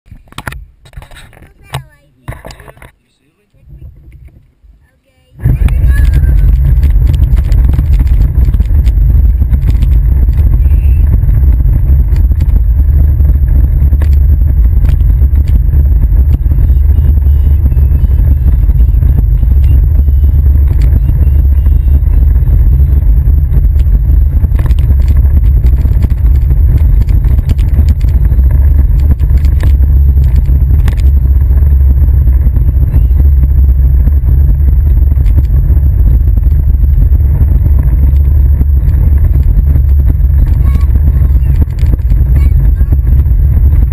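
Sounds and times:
plastic wheels rumbling on pavement: 5.5s - 43.9s
clicks and rattles: 28.9s - 31.1s, 38.1s - 43.0s.

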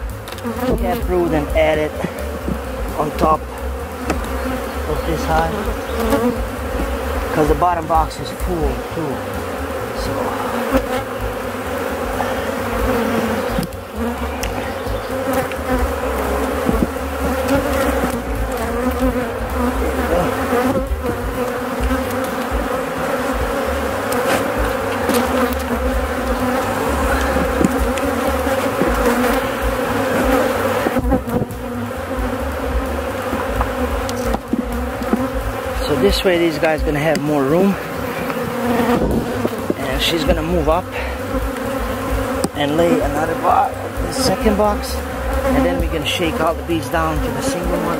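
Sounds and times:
bees buzzing: 0.0s - 47.9s.

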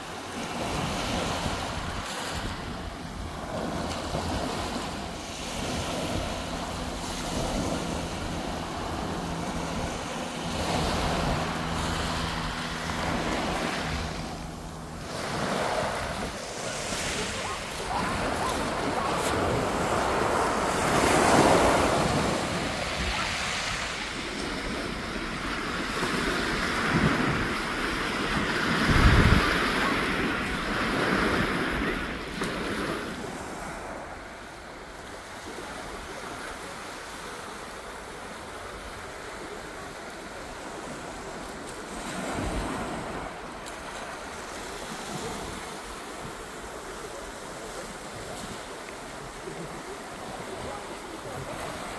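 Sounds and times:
wind buffeting microphone: 0.0s - 34.1s.

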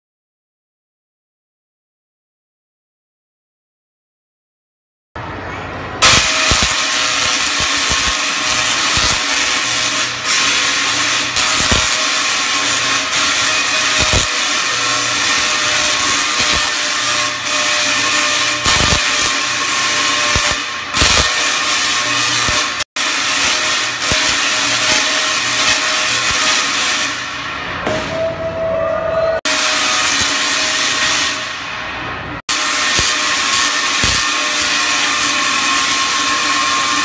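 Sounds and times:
tesla coil buzzing crackle: 6.0s - 27.6s, 29.5s - 31.6s, 32.5s - 37.0s.

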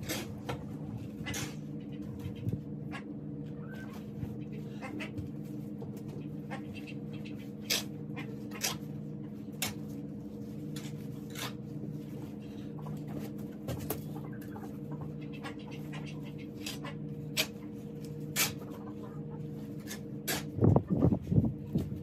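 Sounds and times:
chickens clucking: 0.0s - 22.0s
steady low hum: 0.0s - 22.0s.

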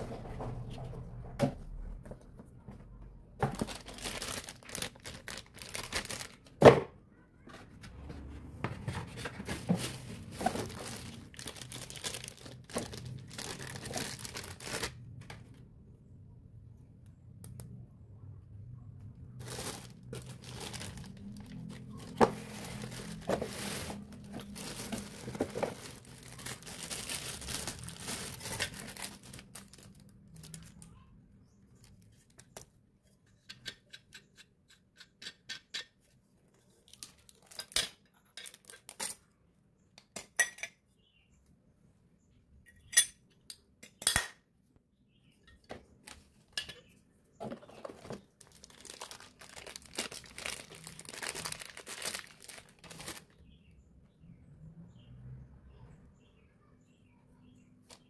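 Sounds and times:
plastic bags crinkling: 3.4s - 6.6s, 9.4s - 15.2s, 19.3s - 30.9s, 36.8s - 37.8s, 47.4s - 53.5s.

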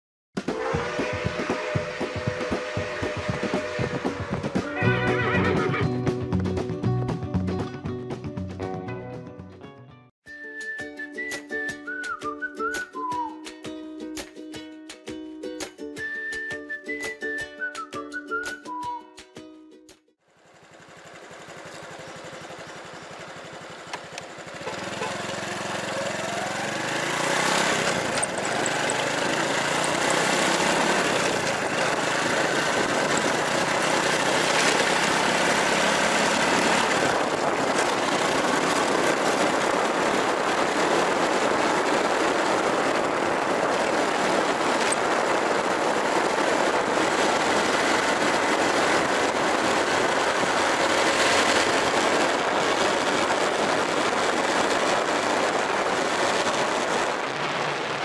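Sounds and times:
motorbike engine speeding up: 0.4s - 7.8s, 20.3s - 58.0s
wind noise on microphone: 0.5s - 6.0s, 26.1s - 58.0s.

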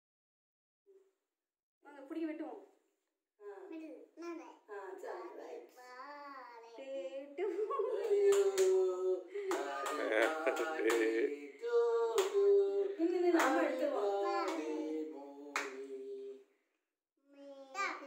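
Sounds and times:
group of people singing together: 7.4s - 16.6s
hand claps: 8.1s - 8.8s, 9.5s - 11.3s, 12.2s - 12.4s, 13.4s - 13.7s, 15.5s - 15.8s.

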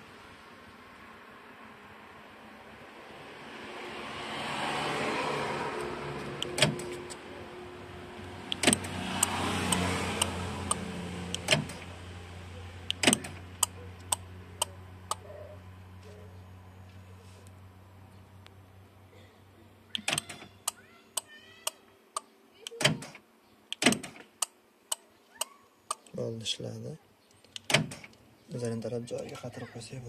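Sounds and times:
sharp clicks: 8.5s - 11.8s, 27.3s - 28.2s.

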